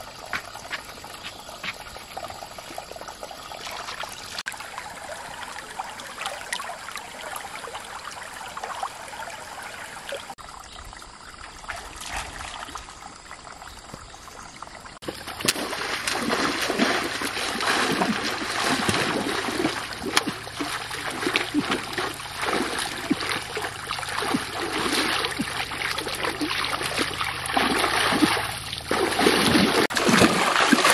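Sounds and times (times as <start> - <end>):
stream water trickling over stones: 0.0 - 30.9
person wading and splashing: 15.0 - 30.9.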